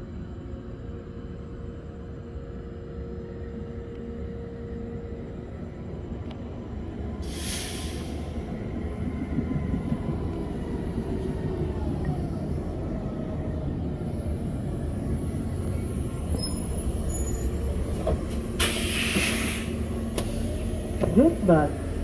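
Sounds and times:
bus engine rumble: 0.0 - 22.0
air hiss: 7.2 - 8.2, 18.6 - 20.5.

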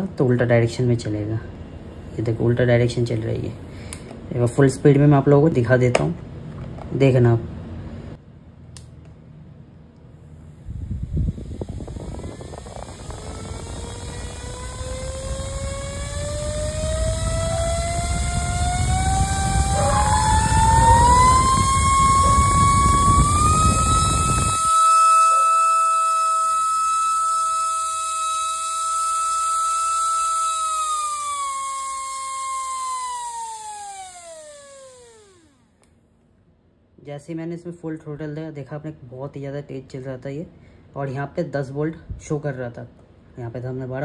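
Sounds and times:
small electric motor whine: 10.4 - 35.8.

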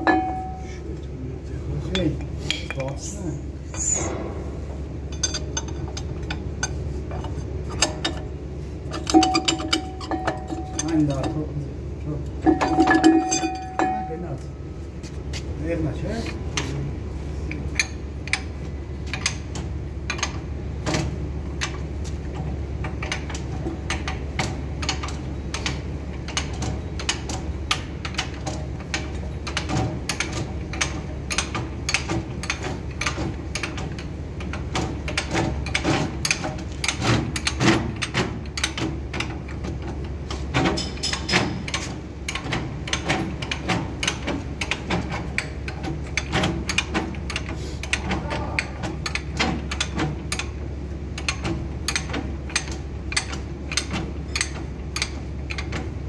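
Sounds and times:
metallic clicking and clanking: 0.0 - 1.1, 1.8 - 14.5, 17.4 - 56.0
steady low hum: 0.0 - 56.0
loud knocks: 4.0 - 6.3.

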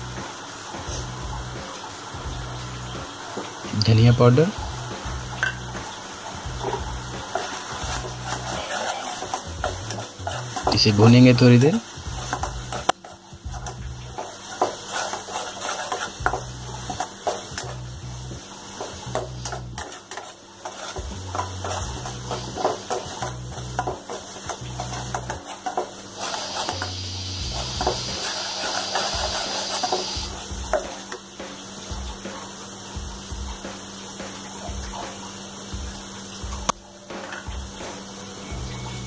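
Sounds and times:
spices sizzling in oil: 0.0 - 39.0
metal spoon scraping pan: 6.6 - 17.8, 18.8 - 30.3.

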